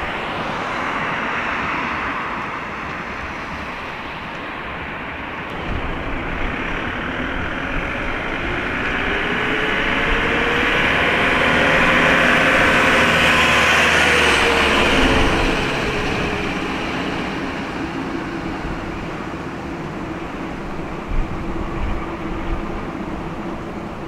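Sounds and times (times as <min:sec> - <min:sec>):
vehicle passing by: 0:05.5 - 0:19.0.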